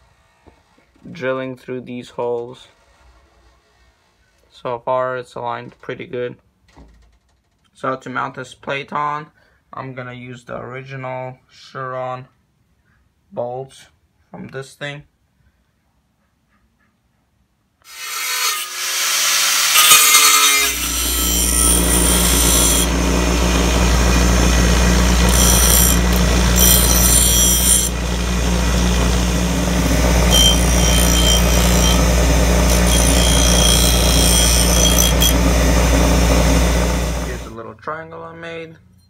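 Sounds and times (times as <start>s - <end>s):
bench grinder motor hum: 19.0s - 37.5s
metal scraping on grinding wheel: 19.7s - 37.5s.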